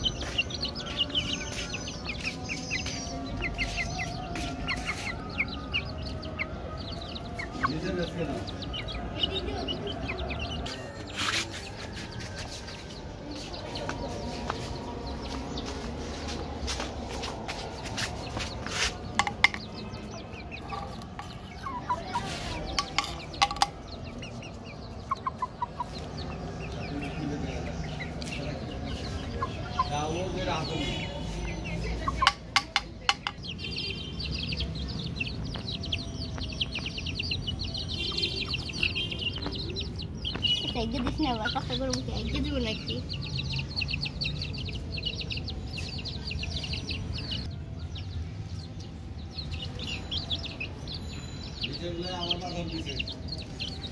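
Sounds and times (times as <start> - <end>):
chicks cheeping and clucking: 0.0 - 53.9
sharp taps: 19.2 - 19.8, 32.2 - 33.5.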